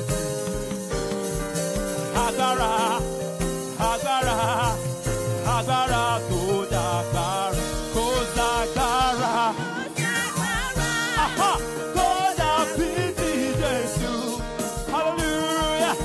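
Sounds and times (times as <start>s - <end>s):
instrumental accompaniment with beat: 0.0s - 16.0s
man singing into a microphone: 2.0s - 16.0s.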